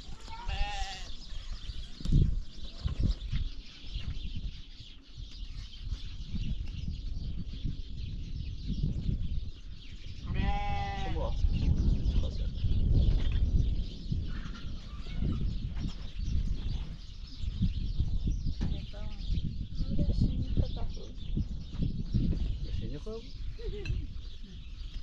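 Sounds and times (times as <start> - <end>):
goat bleating: 0.3 - 1.2, 10.3 - 11.2
low rumbles and thumps: 10.4 - 23.2.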